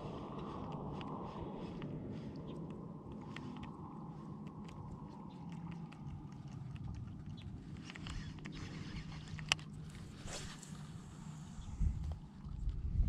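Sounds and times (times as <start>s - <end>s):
wind on microphone: 0.0s - 13.0s
fishing reel clicking: 7.8s - 9.7s.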